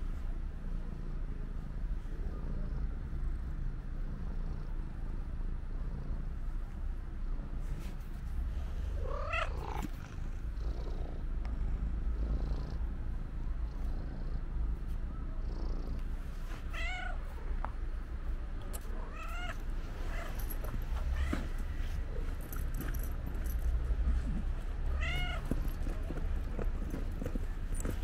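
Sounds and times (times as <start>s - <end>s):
low steady rumble: 0.0s - 28.0s
cat meowing: 9.0s - 9.9s, 16.7s - 17.4s, 19.1s - 20.3s, 24.9s - 25.5s.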